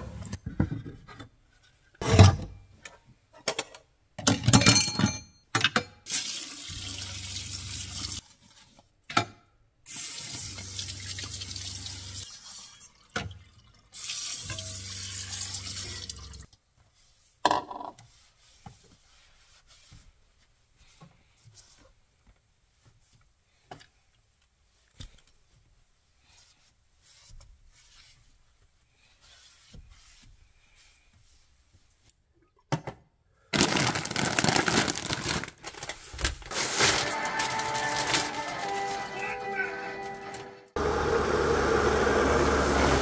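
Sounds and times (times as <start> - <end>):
faucet water running into sink: 6.1 - 8.2, 9.9 - 16.5.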